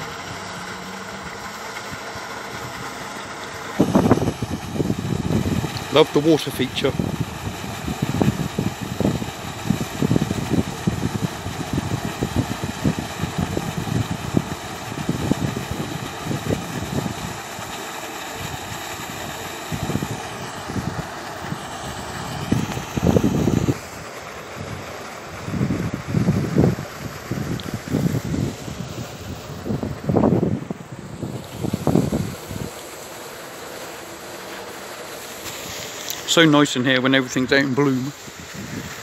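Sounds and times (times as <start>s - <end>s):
fountain water splashing: 0.0s - 39.0s
wind buffeting microphone: 3.7s - 17.7s, 18.4s - 33.0s, 37.3s - 39.0s.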